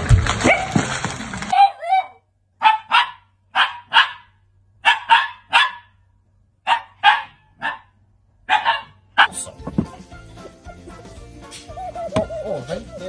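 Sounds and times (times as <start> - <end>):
dog barking: 1.5 - 6.0, 6.6 - 9.5.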